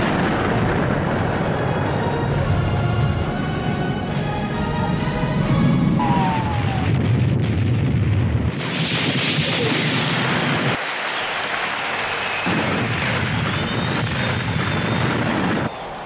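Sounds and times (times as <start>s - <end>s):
bomb explosion rumble: 0.0s - 3.2s, 5.9s - 15.8s
steady rushing noise: 0.0s - 16.0s
short falling whistle: 6.0s - 7.0s, 12.0s - 16.0s.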